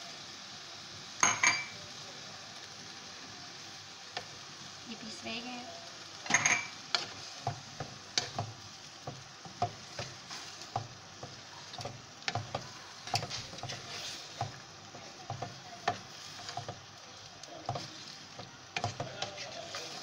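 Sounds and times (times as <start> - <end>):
meat sizzling in a pot: 0.0 - 20.0
wooden spoon scraping a pot: 6.9 - 20.0.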